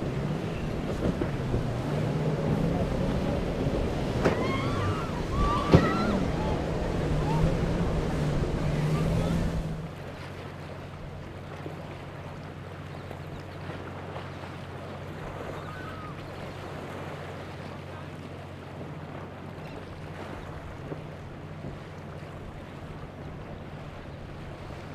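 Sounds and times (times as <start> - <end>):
boat engines: 0.0 - 24.9
churning wake splashing: 0.0 - 24.9
outboard motor hum: 0.0 - 24.9
water lapping: 0.0 - 24.9.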